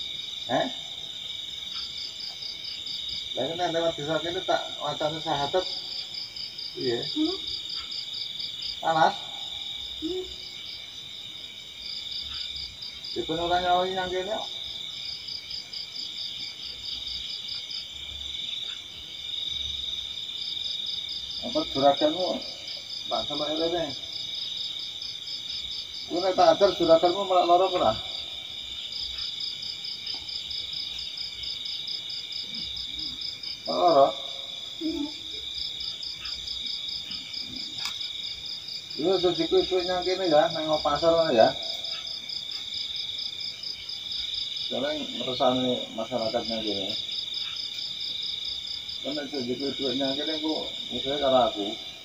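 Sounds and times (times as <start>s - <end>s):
insects trilling: 0.0s - 52.0s
voices: 0.4s - 2.5s, 3.2s - 10.7s, 12.0s - 15.0s, 21.2s - 30.5s, 32.4s - 42.7s, 44.2s - 47.8s, 49.0s - 52.0s.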